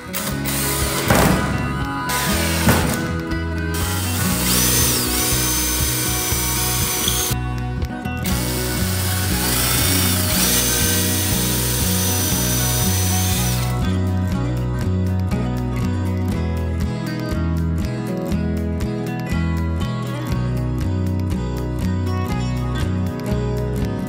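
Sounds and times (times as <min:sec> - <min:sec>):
background music: 0:00.0 - 0:24.0
cordless drill boring into wood: 0:00.1 - 0:01.1, 0:03.8 - 0:07.4, 0:08.3 - 0:13.8.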